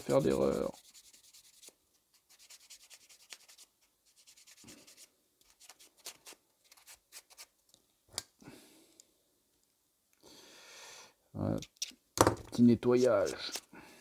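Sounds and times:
sanding tool scratching plastic: 0.0s - 1.7s.

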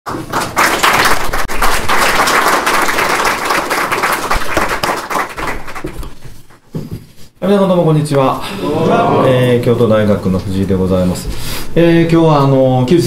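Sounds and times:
audience applauding: 0.1s - 6.2s.

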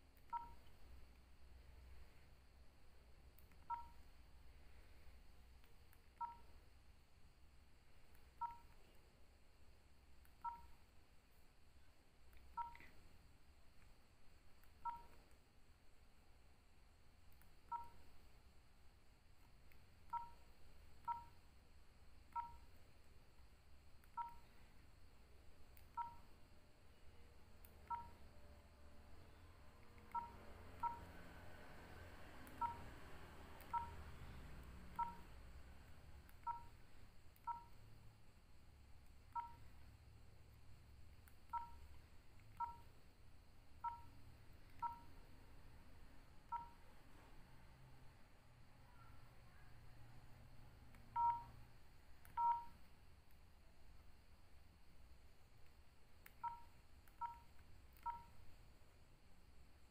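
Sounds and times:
phone keypad two-tone beeps: 0.3s - 0.6s, 3.6s - 4.0s, 6.2s - 6.5s, 8.4s - 8.7s, 10.4s - 10.8s, 12.6s - 12.9s, 14.8s - 15.2s, 17.7s - 18.0s, 20.1s - 20.4s, 21.0s - 21.3s, 22.3s - 22.6s, 24.2s - 24.5s, 25.9s - 26.2s, 27.8s - 28.2s, 30.1s - 31.1s, 32.6s - 32.9s, 33.7s - 34.0s, 34.9s - 35.3s, 36.4s - 36.8s, 37.5s - 37.8s, 39.4s - 39.6s, 41.5s - 41.9s, 42.6s - 42.9s, 43.8s - 44.1s, 44.8s - 45.1s, 51.2s - 51.6s, 52.3s - 52.8s, 56.4s - 58.3s.

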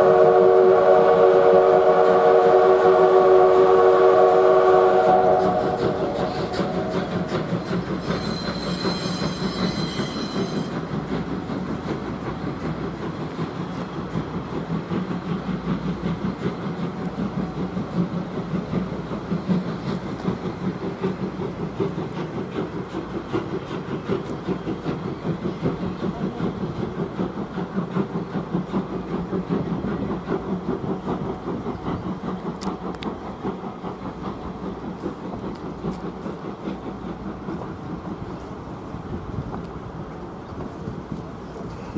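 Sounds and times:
steam whistle blast: 0.0s - 7.2s
train rumbling on rails: 0.0s - 41.9s.

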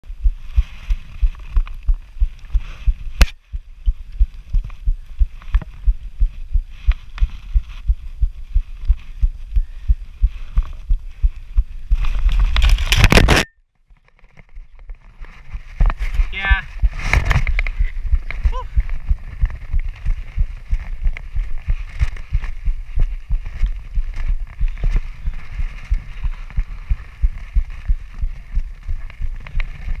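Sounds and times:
rhythmic low thumping: 0.0s - 12.3s, 16.6s - 30.0s
wind rushing: 15.7s - 30.0s.

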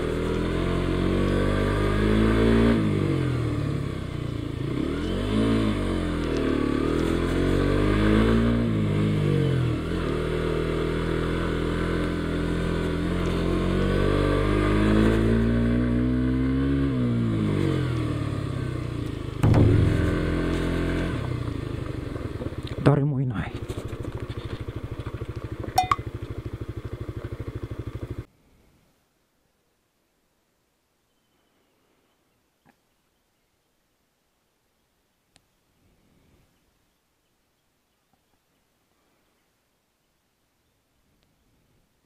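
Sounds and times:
motorcycle engine pulling uphill: 0.0s - 28.3s.

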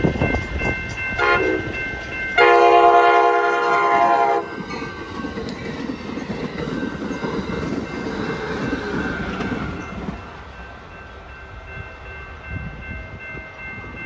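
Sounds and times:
train wheels clattering on rails: 0.0s - 11.2s
train horn: 1.2s - 1.8s, 2.4s - 4.5s.

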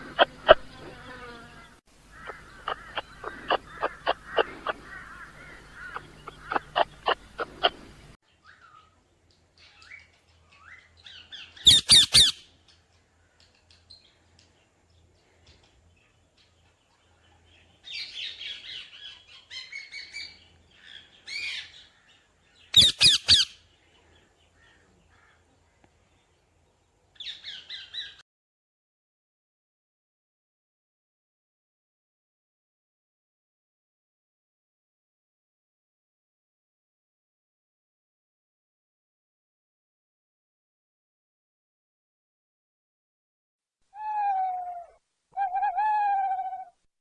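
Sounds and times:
parakeets chattering: 0.0s - 0.9s, 2.1s - 8.2s, 11.7s - 12.4s, 22.8s - 23.6s
parakeets calling: 0.0s - 8.2s, 11.1s - 12.4s, 22.7s - 23.6s.

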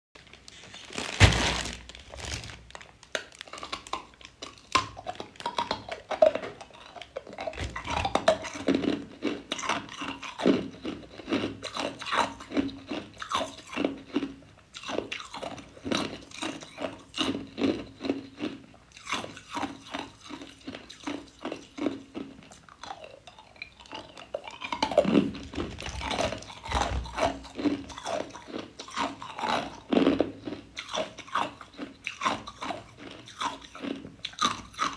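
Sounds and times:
ice cubes crunching: 0.8s - 4.3s.

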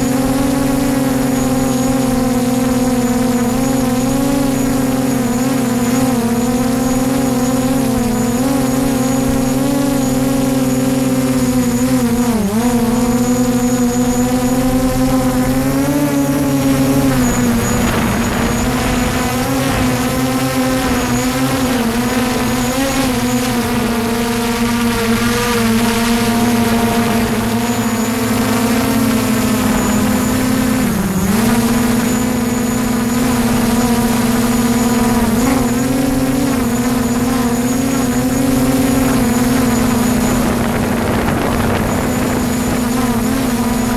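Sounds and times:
drone propellers whining: 0.0s - 43.9s.

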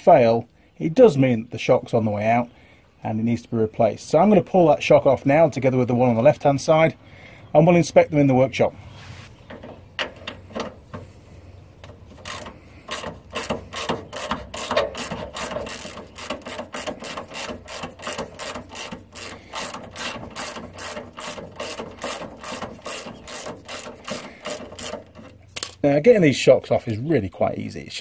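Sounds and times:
hand ratchet clicking: 11.8s - 25.8s.

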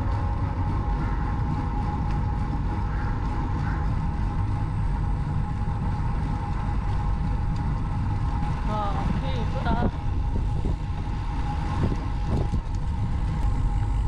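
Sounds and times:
bicycle road noise: 0.0s - 14.0s
wind rumble on microphone: 0.0s - 14.0s.

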